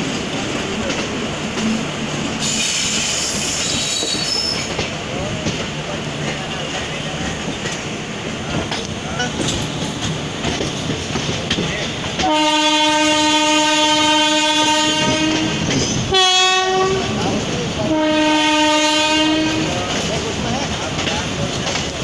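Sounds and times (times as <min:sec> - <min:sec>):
train wheels clacking on rails: 0:00.0 - 0:22.0
locomotive horn blasts: 0:12.2 - 0:17.2, 0:17.8 - 0:19.7.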